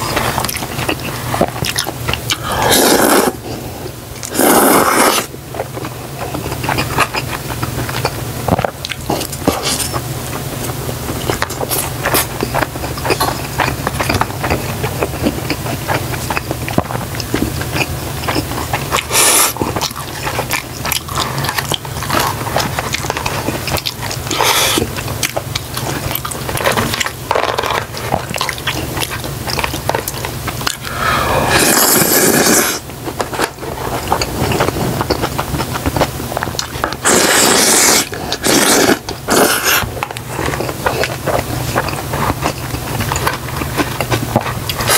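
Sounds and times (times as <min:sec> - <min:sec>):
slurping noodles: 0:00.0 - 0:05.4, 0:09.1 - 0:10.0, 0:17.3 - 0:25.0, 0:30.7 - 0:32.8, 0:36.6 - 0:44.9
chewing and biting food: 0:00.0 - 0:44.9.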